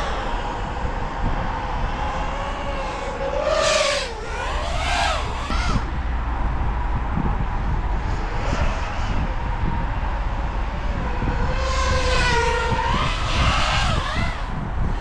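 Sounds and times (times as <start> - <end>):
drone motors whining: 0.0 - 6.1, 8.0 - 15.0.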